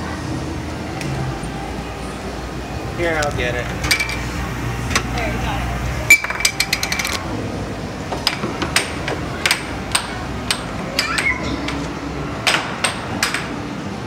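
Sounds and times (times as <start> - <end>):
air hockey puck clacking: 8.1 - 13.7.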